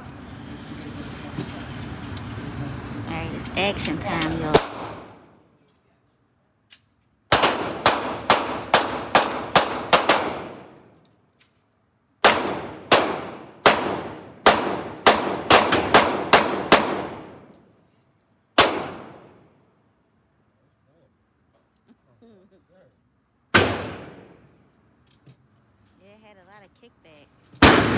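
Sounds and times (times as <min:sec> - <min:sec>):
pistol shots echoing indoors: 0:07.3 - 0:10.8, 0:12.2 - 0:17.5, 0:18.6 - 0:19.5, 0:23.5 - 0:24.4, 0:27.6 - 0:27.9.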